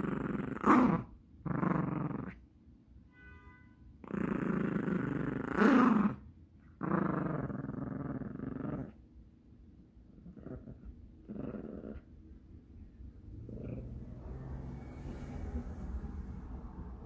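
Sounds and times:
dog play-growling: 0.0s - 2.4s, 4.0s - 6.2s, 6.8s - 9.0s, 10.0s - 12.2s, 13.2s - 17.0s.

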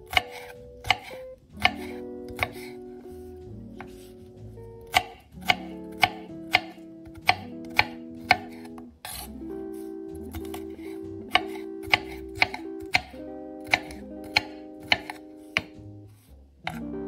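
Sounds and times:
soft background music: 0.0s - 17.0s
knife chopping on wooden board: 0.1s - 2.8s, 3.8s - 4.1s, 4.8s - 9.3s, 10.3s - 15.9s.

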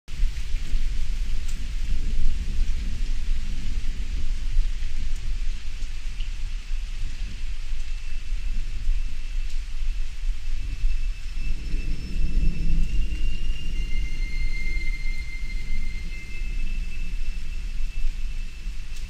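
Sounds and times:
rain hissing: 0.1s - 19.0s
rolling thunder: 10.1s - 19.0s
faint high tone: 11.4s - 18.4s.

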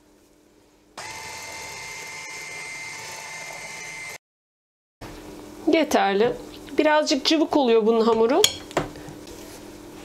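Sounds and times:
electric hand mixer whine: 1.0s - 4.2s.

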